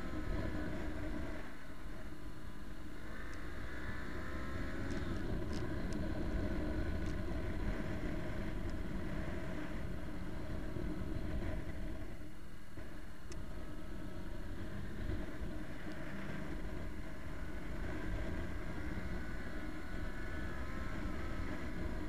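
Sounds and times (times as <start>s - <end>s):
motorcycle engine running: 0.0s - 22.0s
road and wind noise: 0.0s - 22.0s
light ticks: 8.6s - 8.8s.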